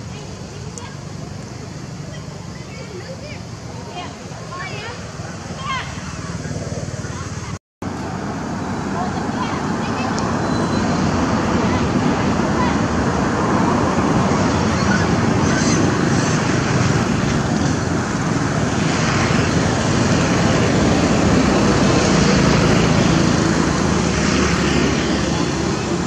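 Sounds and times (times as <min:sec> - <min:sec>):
loud rushing noise: 0:03.3 - 0:26.0.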